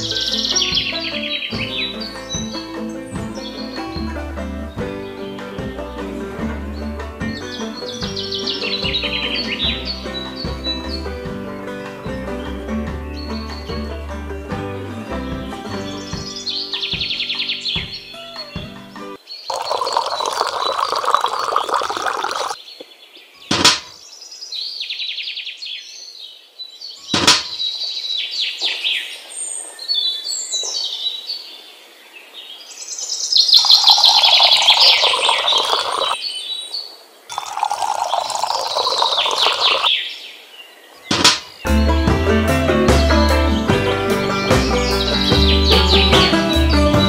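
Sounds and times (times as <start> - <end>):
birds chirping: 0.0 - 47.0
water pouring into container: 19.5 - 22.6, 33.6 - 36.2, 37.3 - 39.9.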